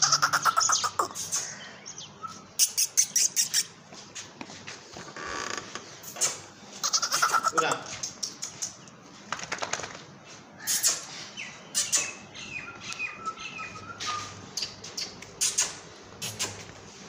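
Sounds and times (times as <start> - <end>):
high-pitched animal chirps: 0.0 - 1.5, 2.6 - 3.7, 6.1 - 8.8.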